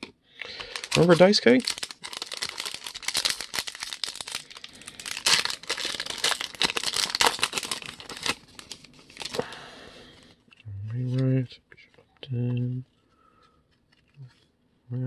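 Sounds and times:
foil wrapper crinkling: 0:00.0 - 0:09.5.

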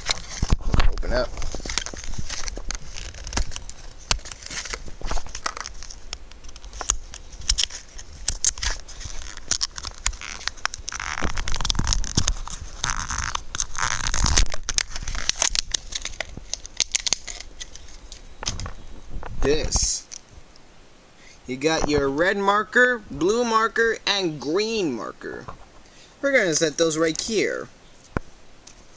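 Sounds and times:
packaging crinkling and tearing: 0:00.0 - 0:18.8.

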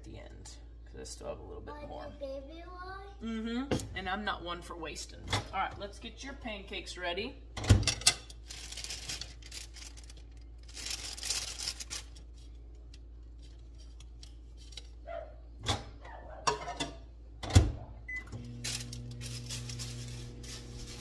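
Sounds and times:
microwave oven humming: 0:17.4 - 0:21.0.

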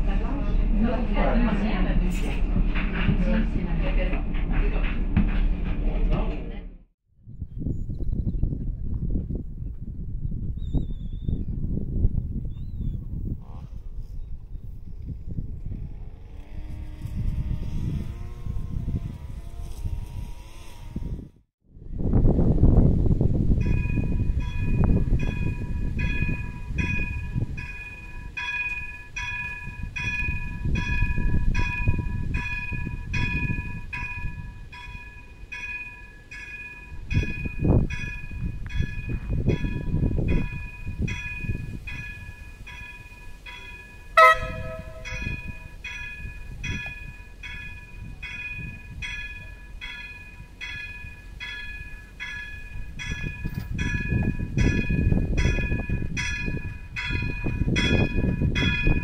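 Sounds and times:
low train rumble: 0:00.0 - 0:10.3, 0:11.4 - 0:59.0
bell ringing: 0:40.6 - 0:52.8
train horn blast: 0:44.1 - 0:45.8.

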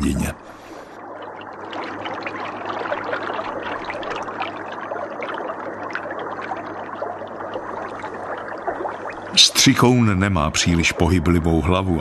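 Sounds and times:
water trickling and bubbling: 0:00.0 - 0:12.0.

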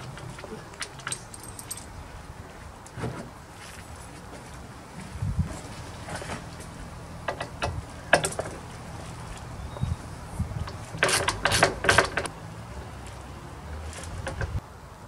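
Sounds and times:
ratchet rasping strokes: 0:10.7 - 0:12.3.

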